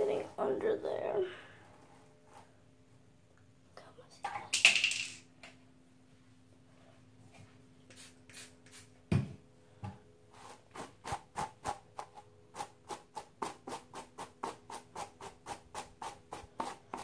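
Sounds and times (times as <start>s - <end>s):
hairbrush stroking through hair: 7.9s - 8.9s, 10.4s - 17.0s.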